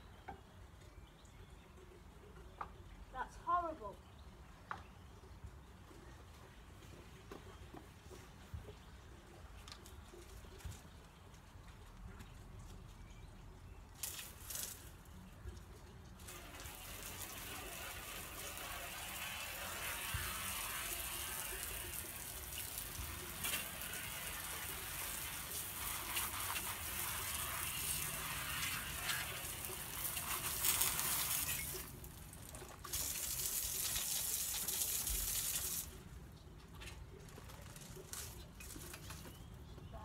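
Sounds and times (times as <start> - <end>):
garden hose spraying water: 13.2 - 36.4.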